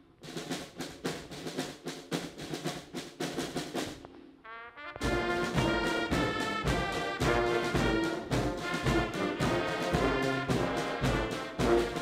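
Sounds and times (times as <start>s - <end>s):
drum beat: 0.2s - 4.2s, 5.0s - 12.0s
brass band playing a march: 4.4s - 12.0s.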